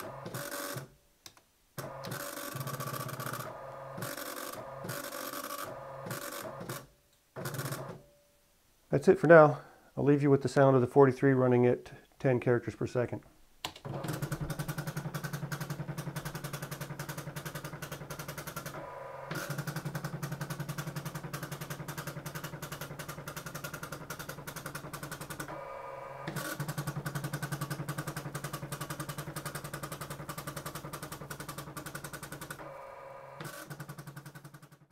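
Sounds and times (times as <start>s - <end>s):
teleprinter print strikes: 13.9s - 34.5s.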